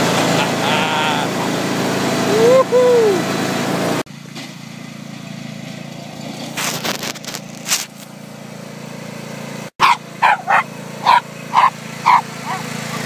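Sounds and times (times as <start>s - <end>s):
riding lawn mower engine running: 0.0s - 13.0s
scraping noises: 6.5s - 8.1s
short sharp pitched calls: 9.8s - 13.0s.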